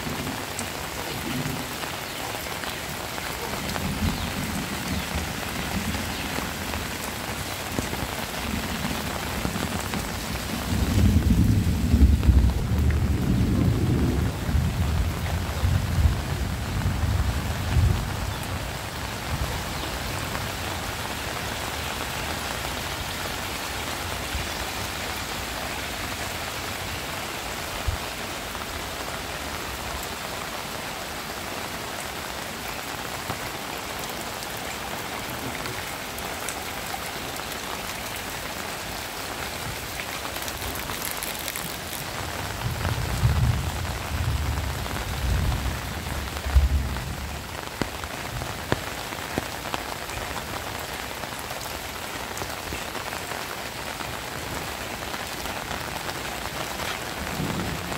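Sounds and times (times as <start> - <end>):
heavy rain falling: 0.0 - 57.9.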